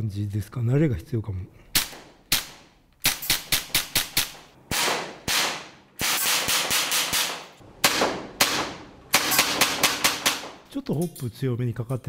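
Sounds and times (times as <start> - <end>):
airsoft pistol sharp cracks: 1.7 - 10.6.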